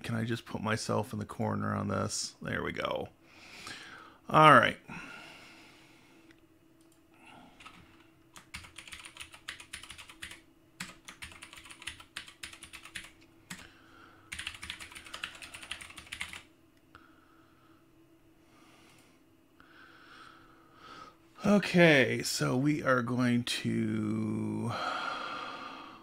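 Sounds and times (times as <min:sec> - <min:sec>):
computer keyboard typing: 0:07.6 - 0:13.7, 0:14.3 - 0:16.5.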